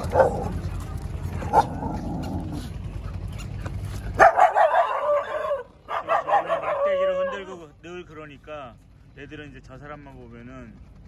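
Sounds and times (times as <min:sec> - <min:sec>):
dogs barking: 0:00.0 - 0:07.6.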